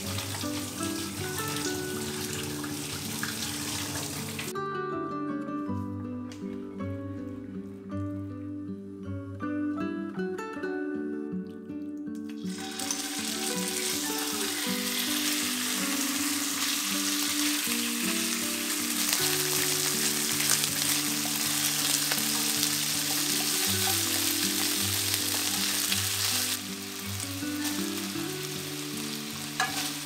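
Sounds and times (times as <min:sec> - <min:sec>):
chicken sizzling in hot oil: 0:00.0 - 0:04.5, 0:12.4 - 0:30.0
background music: 0:00.0 - 0:30.0.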